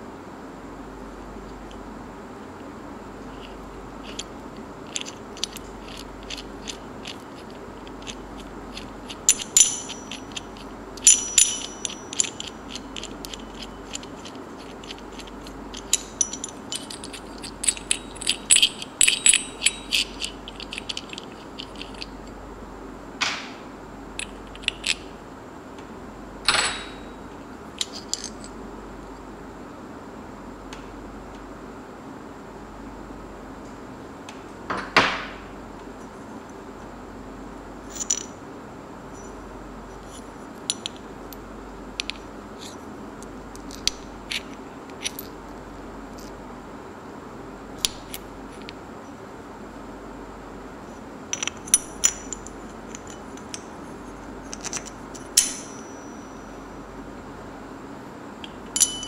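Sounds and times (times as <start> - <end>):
metallic clicks and clinks: 4.9 - 22.2, 24.2 - 25.1, 27.8 - 28.6, 37.9 - 38.3, 40.7 - 41.0, 51.4 - 53.7, 54.5 - 56.4, 58.4 - 59.0.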